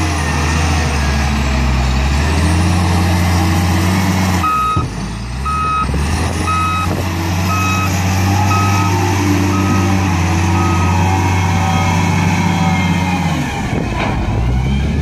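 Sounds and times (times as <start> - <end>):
diesel engine running: 0.0 - 15.0
reversing alarm beeps: 4.4 - 5.9, 6.5 - 6.9, 7.5 - 9.9, 10.5 - 11.1.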